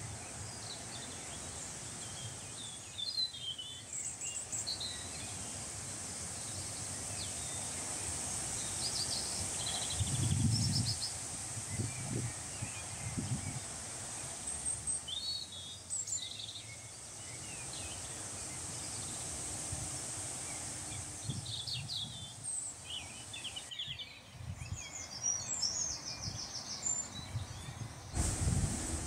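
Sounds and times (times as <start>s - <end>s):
songbirds chirping and trilling: 0.0s - 29.0s
wind rumble on microphone: 4.8s - 15.0s, 17.3s - 25.2s, 27.2s - 29.0s.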